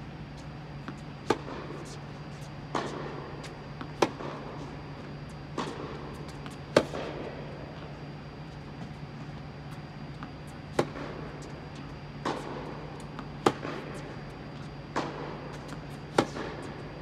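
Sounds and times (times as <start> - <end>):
steady low hum: 0.0 - 17.0
tennis ball struck by racket: 0.8 - 4.6, 5.5 - 7.3, 10.2 - 11.5, 12.2 - 14.3, 14.9 - 17.0.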